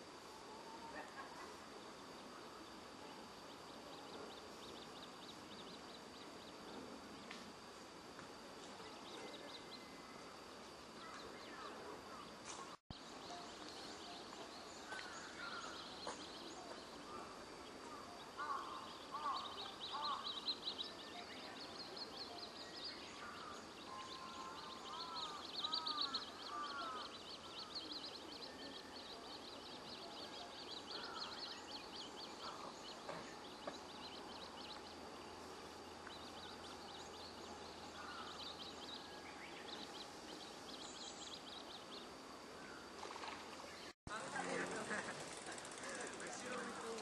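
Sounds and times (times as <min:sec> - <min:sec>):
arched lower bird calls: 0:22.9 - 0:29.2.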